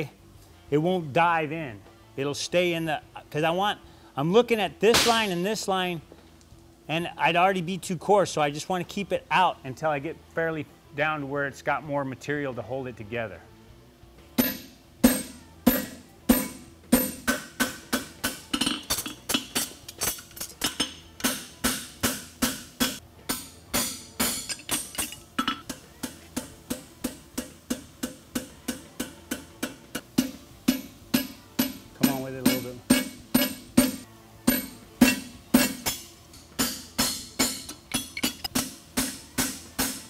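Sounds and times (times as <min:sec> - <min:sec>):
hammer striking metal on anvil: 0:14.4 - 0:40.0.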